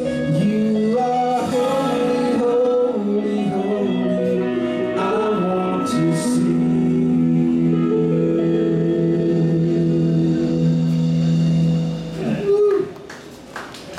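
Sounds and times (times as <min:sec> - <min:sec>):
man singing: 0:00.0 - 0:11.0
electric bass: 0:00.0 - 0:12.4
electric guitars: 0:00.0 - 0:12.6
drums: 0:00.0 - 0:13.6.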